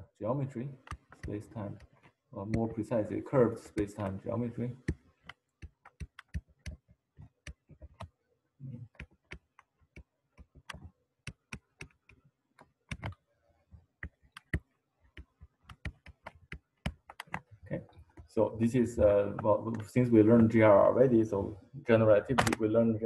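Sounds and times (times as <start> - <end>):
stylus tapping on pen surface: 0.8 - 2.8, 4.8 - 8.2, 8.9 - 13.2, 13.9 - 18.3.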